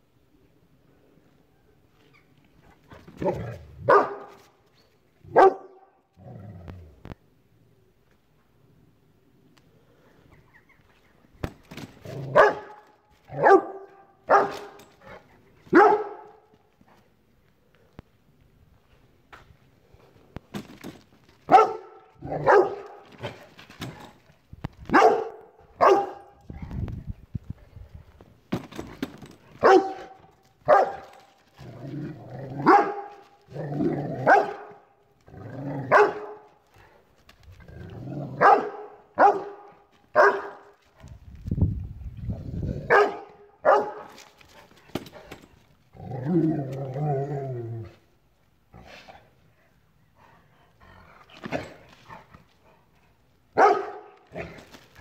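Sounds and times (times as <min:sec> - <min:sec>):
dog barking: 0:03.8 - 0:04.4, 0:05.3 - 0:05.9, 0:12.3 - 0:12.8, 0:13.4 - 0:14.8, 0:15.7 - 0:16.4, 0:21.5 - 0:23.0, 0:24.9 - 0:26.4, 0:29.6 - 0:31.1, 0:32.6 - 0:33.1, 0:34.2 - 0:34.8, 0:35.9 - 0:36.5, 0:38.4 - 0:40.6, 0:42.8 - 0:44.1, 0:53.6 - 0:54.2.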